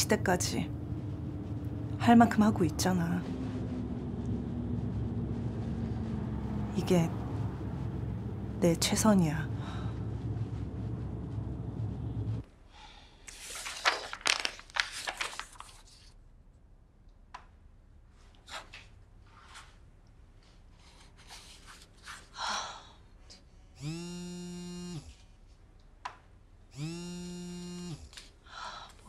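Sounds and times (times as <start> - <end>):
papers rustling: 13.3 - 16.2
phone vibrating on a wooden desk: 23.8 - 25.2, 26.8 - 28.2.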